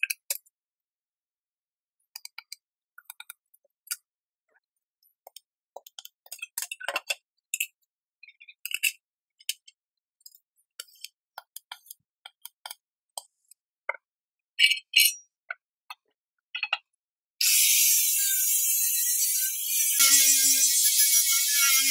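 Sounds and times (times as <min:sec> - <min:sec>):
angle grinder grinding steel: 0:17.4 - 0:21.9.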